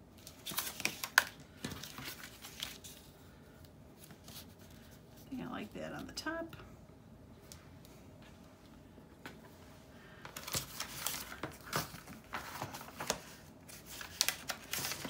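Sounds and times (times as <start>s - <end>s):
book pages rustling: 0.2s - 3.2s, 4.0s - 5.0s, 10.3s - 15.0s.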